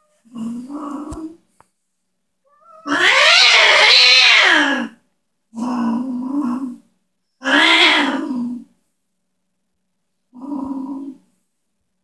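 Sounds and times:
cat yowling and growling: 0:02.5 - 0:05.0, 0:07.4 - 0:08.7.

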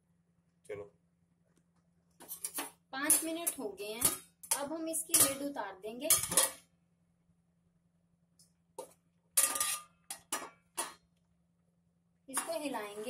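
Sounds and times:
metal pan lid clinking: 0:05.1 - 0:05.4, 0:06.1 - 0:06.6, 0:09.4 - 0:11.0.

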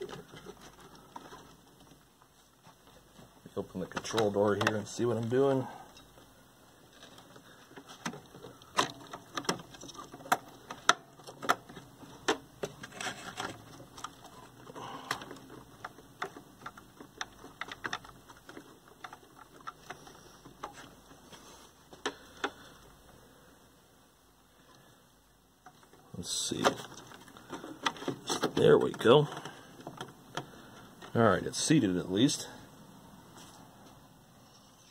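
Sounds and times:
small clicks and rustles of wiring: 0:00.0 - 0:23.2, 0:25.6 - 0:31.2.

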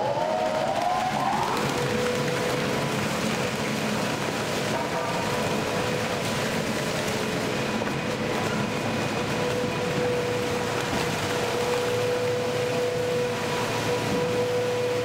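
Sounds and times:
shredder running under load: 0:00.0 - 0:15.0.

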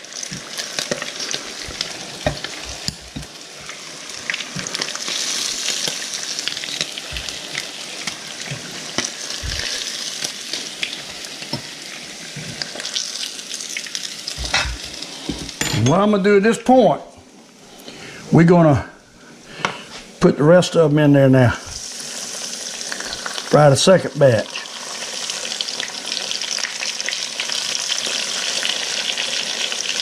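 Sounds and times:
grease sizzling in a frying pan: 0:00.0 - 0:15.6, 0:21.7 - 0:30.0.

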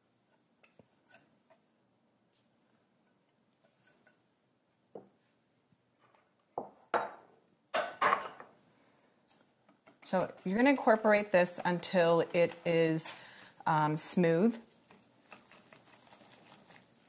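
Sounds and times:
whisk scraping glass bowl: 0:10.0 - 0:17.0.

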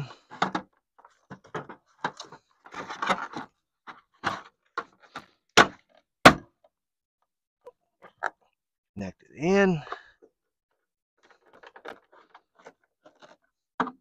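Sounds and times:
plastic knocks and scrapes: 0:00.3 - 0:06.7, 0:11.2 - 0:14.0.

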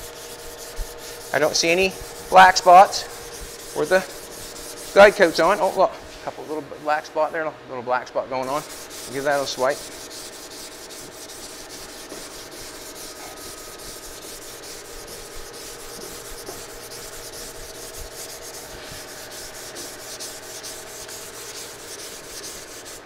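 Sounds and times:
sandpaper rubbing strokes: 0:00.0 - 0:07.4, 0:08.4 - 0:23.0.

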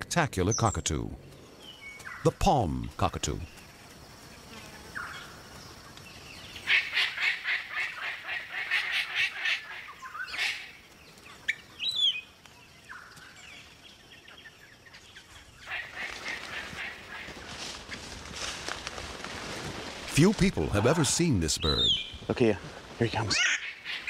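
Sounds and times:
parrots calling: 0:06.6 - 0:10.8, 0:23.3 - 0:24.0.

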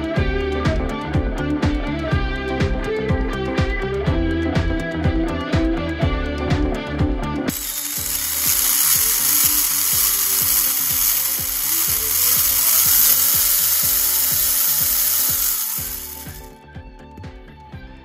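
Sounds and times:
high-pitched gear whine: 0:07.5 - 0:16.5.

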